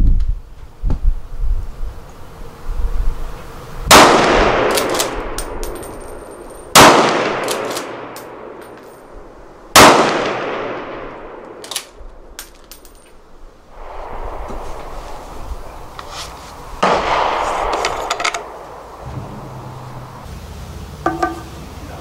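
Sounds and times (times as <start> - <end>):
rifle shots echoing: 3.9 - 12.4, 16.7 - 20.2
metallic clicks and clinks: 4.7 - 6.7, 7.4 - 9.2, 11.6 - 13.2.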